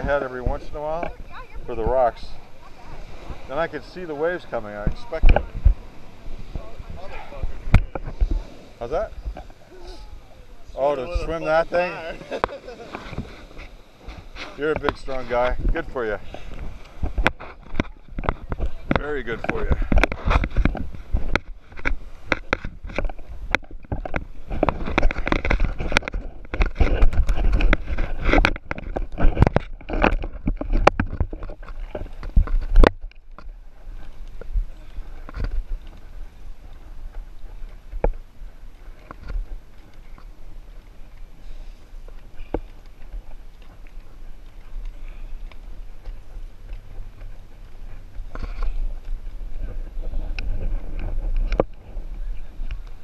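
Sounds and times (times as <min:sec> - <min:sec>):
wind rumble on microphone: 0:00.0 - 0:53.0
light clicks and knocks of gear: 0:14.1 - 0:53.0.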